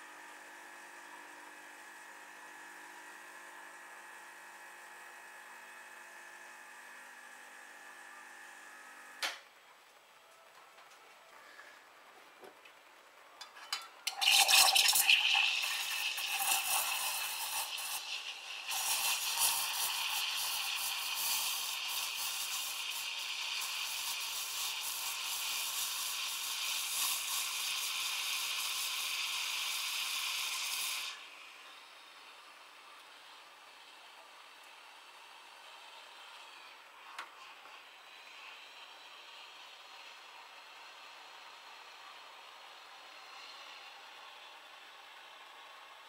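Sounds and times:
steam wand hissing: 0:14.2 - 0:31.3.

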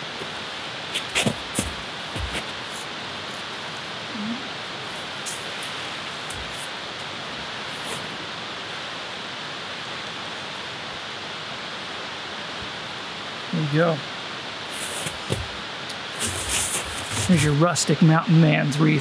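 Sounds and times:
evergreen branches rustling: 0:00.0 - 0:08.6, 0:14.6 - 0:18.0
background hiss: 0:00.0 - 0:19.0.

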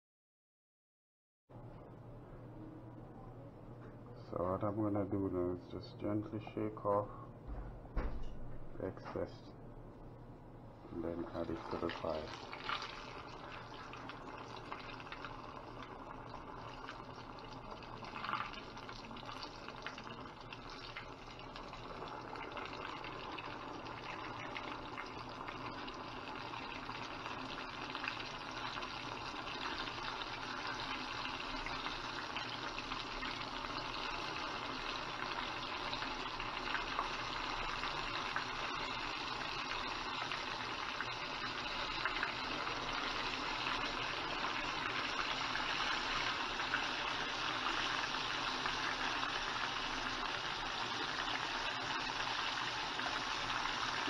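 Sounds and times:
chicken deep-frying in hot oil: 0:10.9 - 0:54.0.

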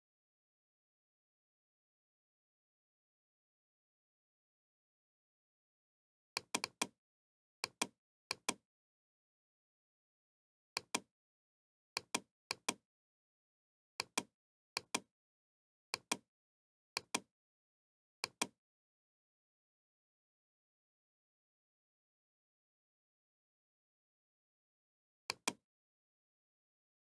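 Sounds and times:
computer mouse clicking: 0:06.4 - 0:07.0, 0:07.6 - 0:08.6, 0:10.8 - 0:11.1, 0:12.0 - 0:12.8, 0:14.0 - 0:15.1, 0:17.0 - 0:17.3, 0:18.2 - 0:18.6, 0:25.3 - 0:25.6.

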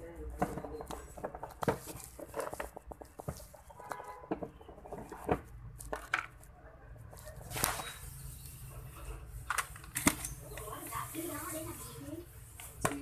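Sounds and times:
fishing gear knocking and rustling: 0:00.3 - 0:06.5.

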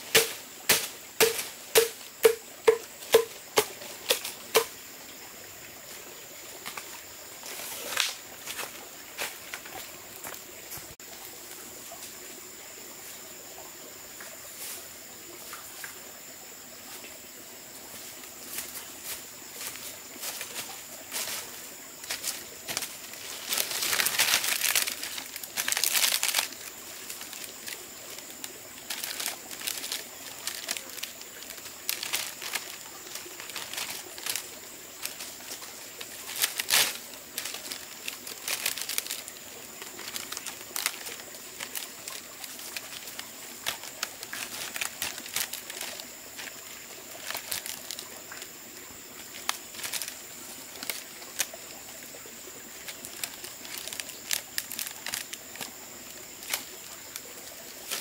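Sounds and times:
sharp crack: 0:00.0 - 0:04.7
rustling and crackling: 0:18.5 - 0:48.5, 0:49.3 - 0:52.0, 0:52.8 - 0:55.8, 0:56.4 - 0:58.0.

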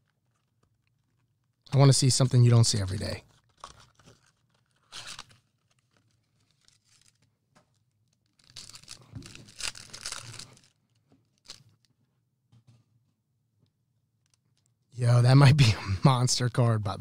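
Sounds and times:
foil wrapper tearing and crinkling: 0:03.3 - 0:11.9.

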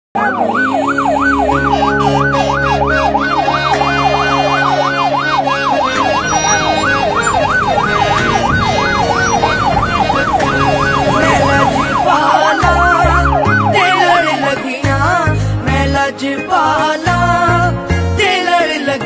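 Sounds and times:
electronic siren yelping: 0:00.2 - 0:14.6.

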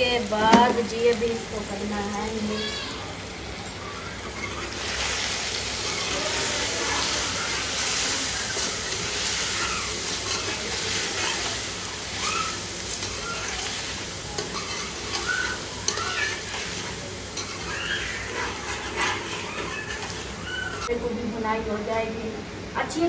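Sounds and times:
food sizzling: 0:00.0 - 0:20.9
spoon scraping a pot: 0:05.8 - 0:20.9.

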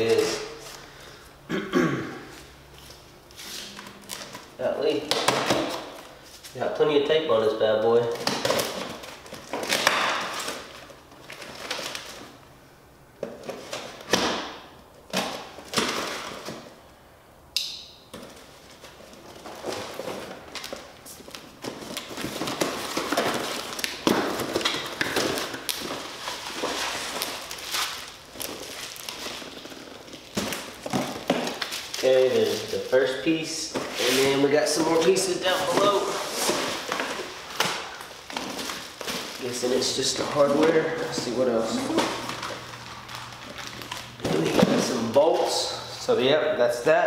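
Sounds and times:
plastic wrap rustling: 0:02.3 - 0:12.5, 0:18.2 - 0:46.3
packing tape ripping: 0:08.1 - 0:12.4, 0:18.7 - 0:33.2, 0:41.6 - 0:45.5
cardboard scraping: 0:33.7 - 0:39.6.

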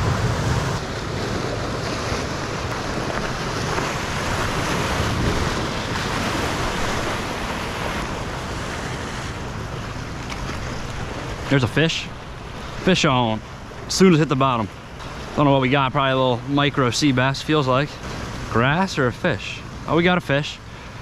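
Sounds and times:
wind buffeting microphone: 0:00.0 - 0:11.5
ocean surf breaking on rocks: 0:00.0 - 0:21.0.

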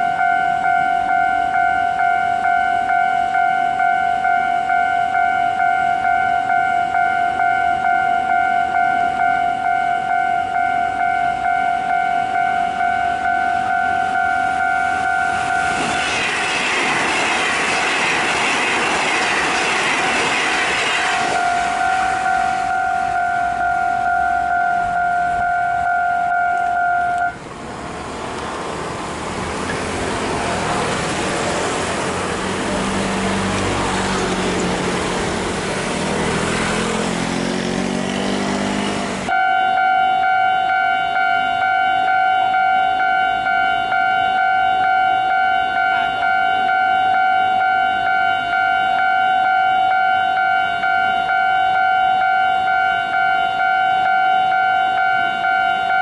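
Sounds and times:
crossing bell two-tone ringing: 0:00.0 - 0:16.4, 0:21.0 - 0:27.4, 0:38.8 - 0:56.0
electric train passing: 0:00.0 - 0:56.0.

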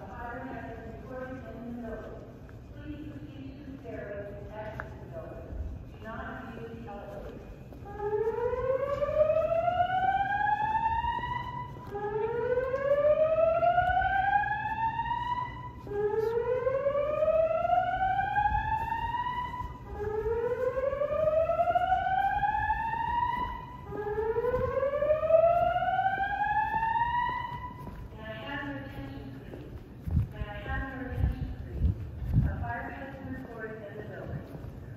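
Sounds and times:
fire alarm whoop: 0:07.9 - 0:27.9.

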